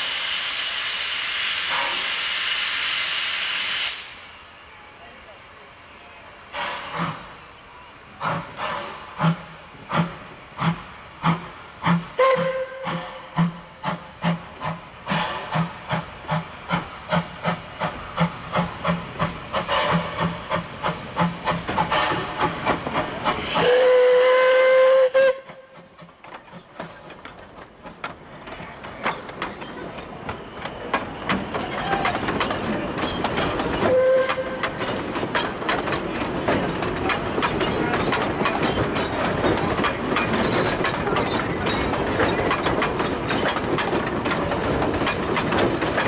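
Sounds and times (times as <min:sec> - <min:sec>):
steam locomotive chuffing: 0:00.0 - 0:46.0
carriages clattering on rails: 0:06.0 - 0:46.0
steam whistle: 0:12.2 - 0:13.2, 0:23.6 - 0:25.8, 0:33.9 - 0:34.6.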